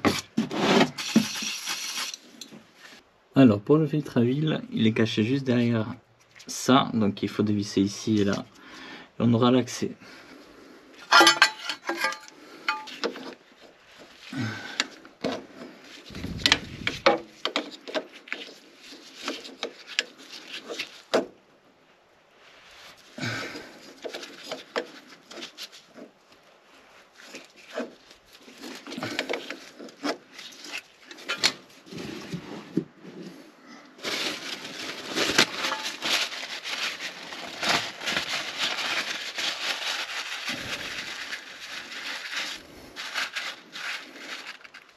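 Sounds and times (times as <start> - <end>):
paper towel rustling: 15.4 - 21.1, 34.0 - 44.9.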